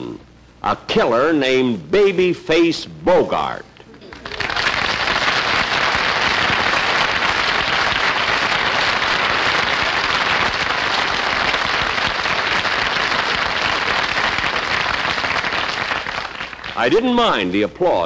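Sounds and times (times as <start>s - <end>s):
audience applauding: 3.9s - 17.1s.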